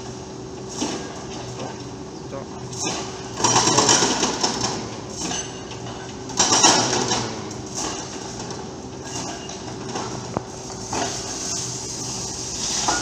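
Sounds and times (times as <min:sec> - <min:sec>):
excavator engine hum: 0:00.0 - 0:13.0
hydraulic breaker hammering concrete: 0:02.7 - 0:11.4.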